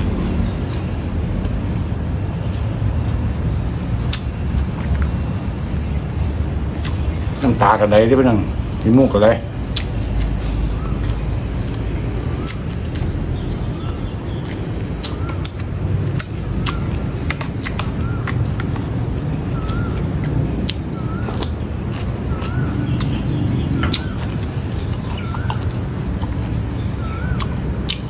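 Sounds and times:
mouth chewing food: 0.0 - 28.0
steady low rumble: 0.0 - 28.0
bird wavering chirp: 10.0 - 21.4, 22.2 - 27.7.

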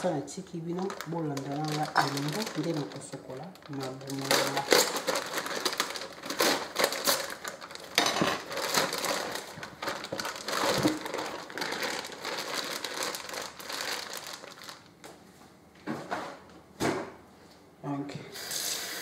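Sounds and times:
plastic bag crinkling: 0.0 - 15.1.

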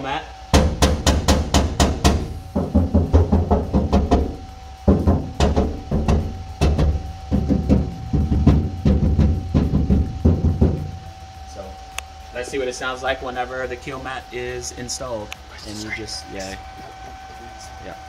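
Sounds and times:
hand knocking on sheet metal: 0.6 - 11.0.

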